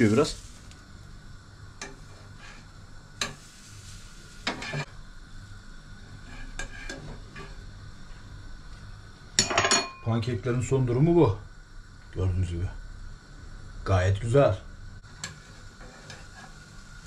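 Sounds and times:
pancakes sizzling in pan: 0.0s - 8.2s, 15.0s - 17.0s
metal utensil scraping pan: 4.4s - 4.9s, 6.2s - 7.6s, 15.2s - 16.6s.

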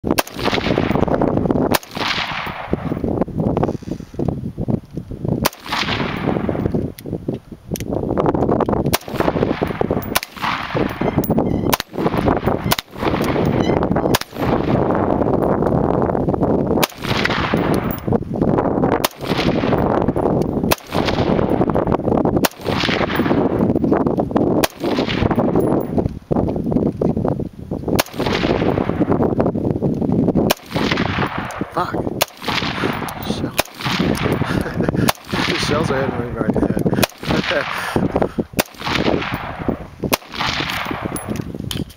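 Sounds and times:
rifle shots echoing: 0.1s - 3.0s, 5.4s - 6.7s, 8.9s - 15.4s, 16.8s - 18.1s, 19.0s - 23.7s, 24.6s - 25.8s, 28.0s - 29.2s, 30.5s - 34.5s, 35.1s - 36.2s, 36.9s - 41.4s.

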